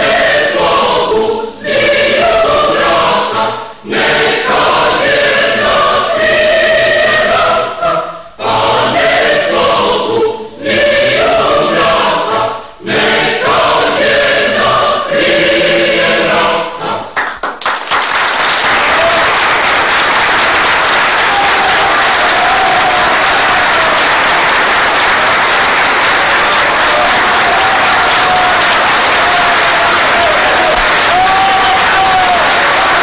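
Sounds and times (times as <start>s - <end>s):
group singing in chorus: 0.0s - 17.3s, 20.9s - 33.0s
applause: 17.2s - 33.0s.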